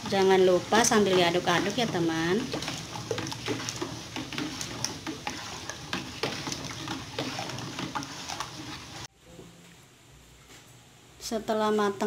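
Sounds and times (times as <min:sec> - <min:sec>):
spoon scraping metal pot: 0:00.0 - 0:09.1
thick liquid swishing: 0:00.5 - 0:09.1.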